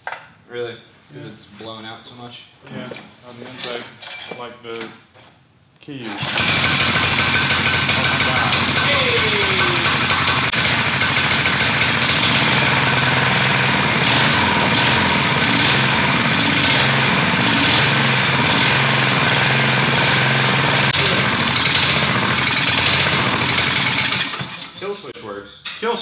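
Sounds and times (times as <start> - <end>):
small engine running steadily: 6.2 - 24.6.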